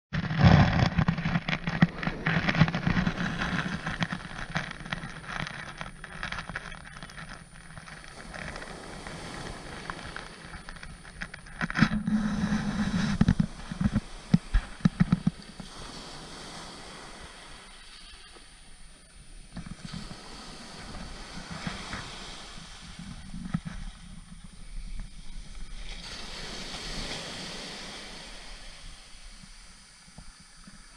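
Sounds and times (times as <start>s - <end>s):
small crackles and knocks: 0.1s - 16.2s, 19.5s - 20.2s, 22.8s - 26.0s
waves breaking on shingle: 0.2s - 17.5s.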